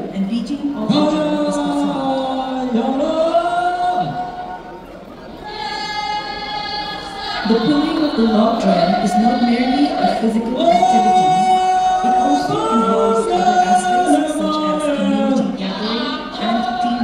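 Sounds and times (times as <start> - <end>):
group chanting in chorus: 5.4 - 17.0.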